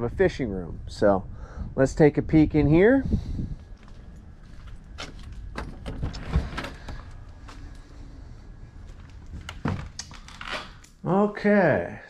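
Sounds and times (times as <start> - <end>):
footsteps: 3.6 - 8.1, 8.7 - 10.5
door clicks and knocks: 5.0 - 7.0.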